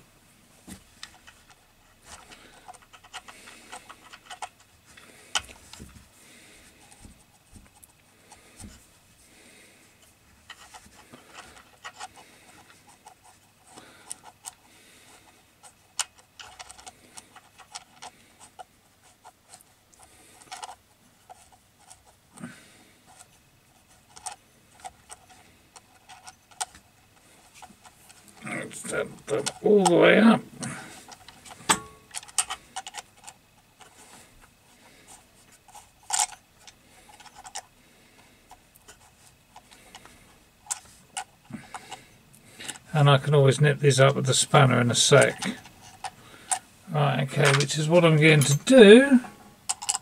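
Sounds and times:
small clicks of nuts and washers: 49.2s - 50.0s.

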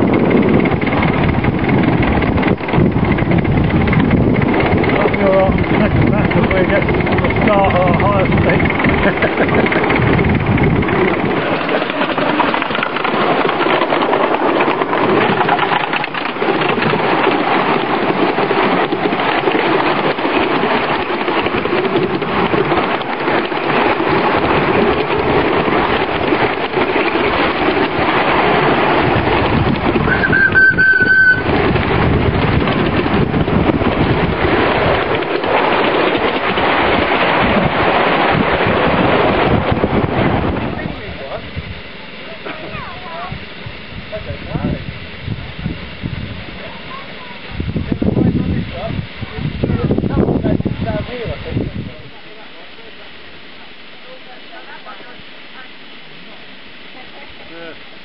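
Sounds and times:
train wheels rumbling on rails: 0.0s - 58.0s
high train whistle toot: 30.1s - 31.6s.

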